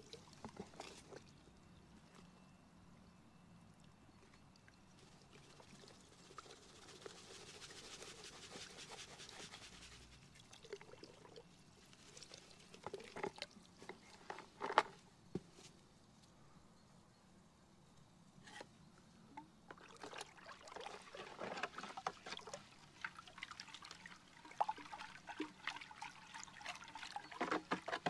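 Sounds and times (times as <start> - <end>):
liquid pouring into water: 10.4 - 11.5, 19.7 - 28.0.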